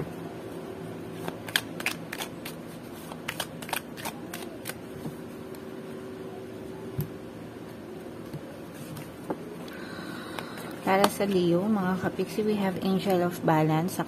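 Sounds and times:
cards being shuffled: 1.2 - 4.8.

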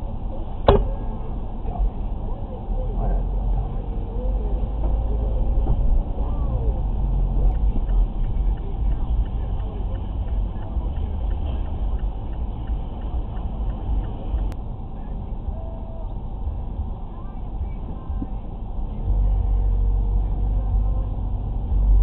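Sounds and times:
car engine and road rumble: 0.0 - 22.0
faint regular ticking: 7.5 - 14.6.

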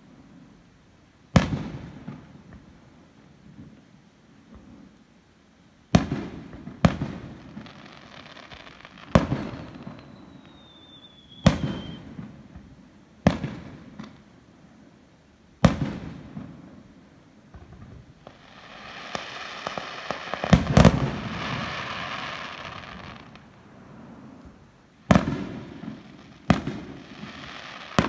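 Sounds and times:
firework whistle: 8.0 - 12.4.

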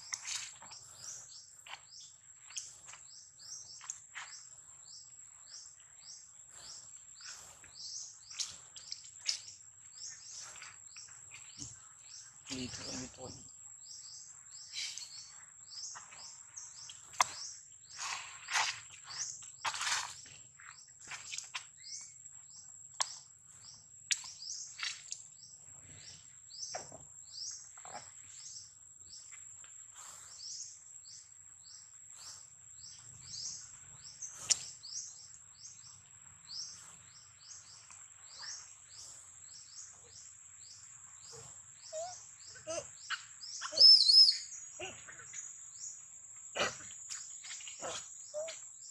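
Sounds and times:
bird chirps high and falling: 41.9 - 44.5.

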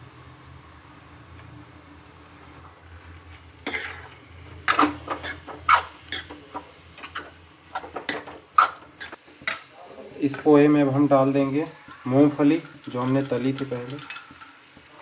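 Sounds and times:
metal spoon scraping a pan: 3.0 - 9.7, 11.1 - 15.0.

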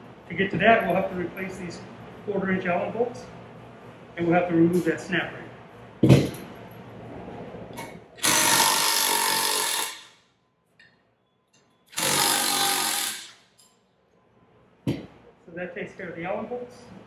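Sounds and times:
impact driver hammering bolts: 11.9 - 13.4.

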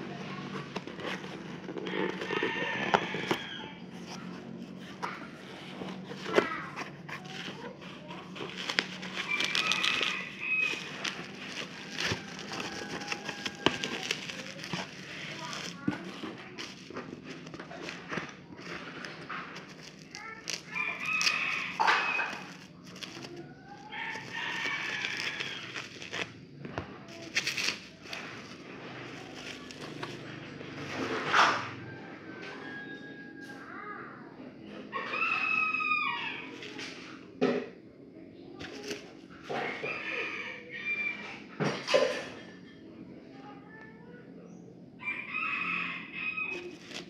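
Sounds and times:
plastic wrap crinkling: 0.0 - 31.0, 36.4 - 37.1, 38.6 - 39.1, 46.5 - 47.0
rooster crowing: 1.8 - 3.9, 8.5 - 15.9, 20.2 - 26.2, 31.8 - 33.6, 34.9 - 36.8, 39.7 - 41.4, 45.0 - 47.0.

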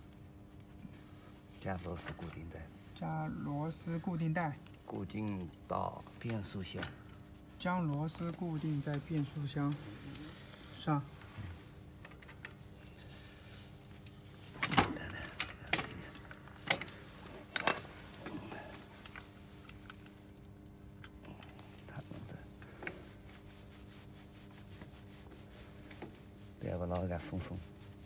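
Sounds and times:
steady low hum: 0.0 - 28.0
metal tools clinking on bolts: 4.6 - 9.8, 11.1 - 13.0, 14.0 - 22.4.

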